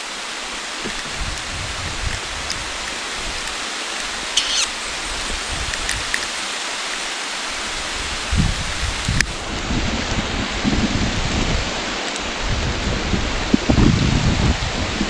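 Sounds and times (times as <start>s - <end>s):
rain falling on foliage: 0.0s - 15.0s.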